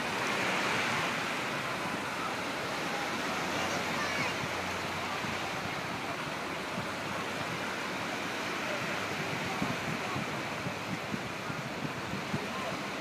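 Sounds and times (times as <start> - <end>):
waves breaking against concrete: 0.0 - 13.0
wind thumps on microphone: 9.0 - 13.0.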